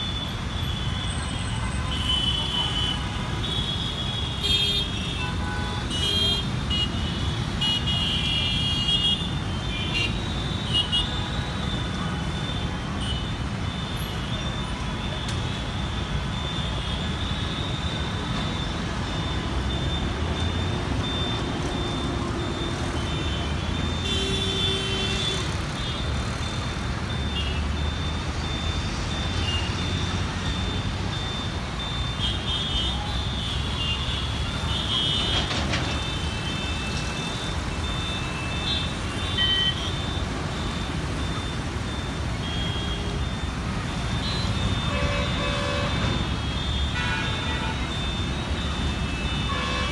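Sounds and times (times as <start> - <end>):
dense city traffic: 0.0 - 49.9
repeating high beep: 15.8 - 24.0, 25.8 - 32.3, 36.7 - 49.5
vehicle horns honking: 44.2 - 48.2, 49.1 - 49.9.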